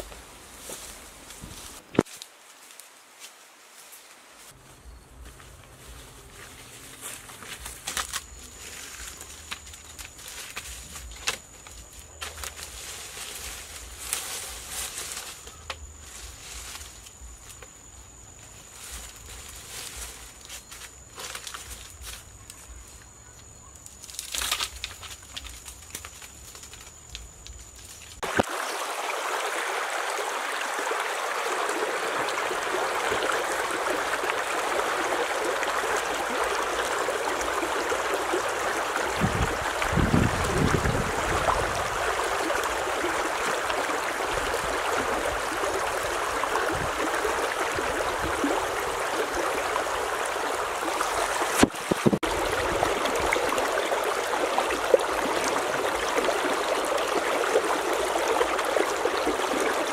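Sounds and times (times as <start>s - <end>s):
stream water rushing: 28.2s - 59.9s.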